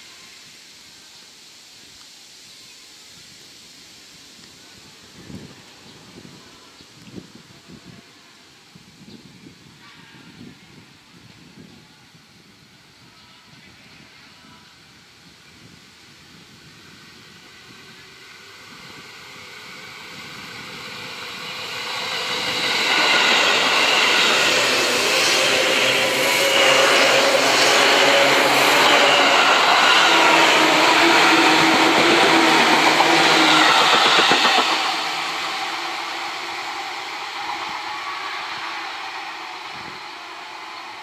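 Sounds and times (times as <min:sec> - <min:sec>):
electric train passing: 0:16.3 - 0:41.0
train motor whine: 0:18.3 - 0:41.0.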